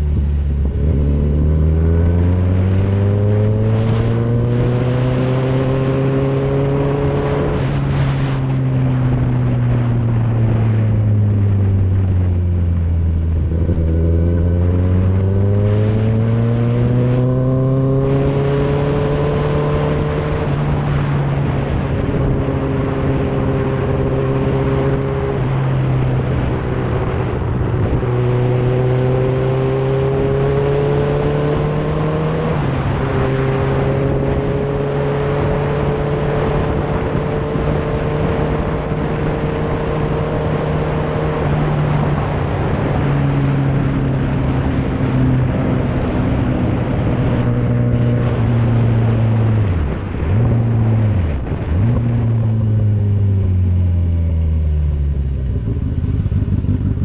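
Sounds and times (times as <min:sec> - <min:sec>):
wind noise: 0:00.0 - 0:57.0
motorcycle engine running: 0:35.4 - 0:57.0.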